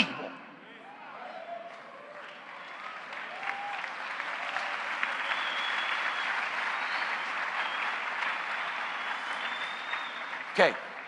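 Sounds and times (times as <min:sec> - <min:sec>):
audience applauding: 0:01.3 - 0:11.0.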